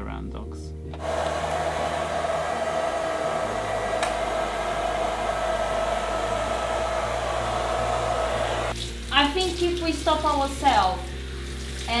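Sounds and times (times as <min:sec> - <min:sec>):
blow dryer running: 0:01.0 - 0:08.8.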